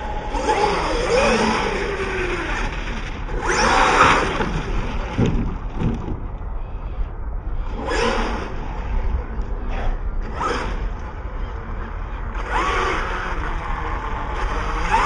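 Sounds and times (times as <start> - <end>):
electric toy truck motor whining: 0.0 - 4.4, 10.2 - 15.0.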